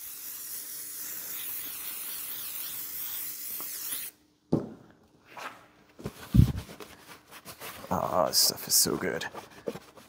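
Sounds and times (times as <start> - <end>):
aerosol spray can hissing: 0.0 - 4.2.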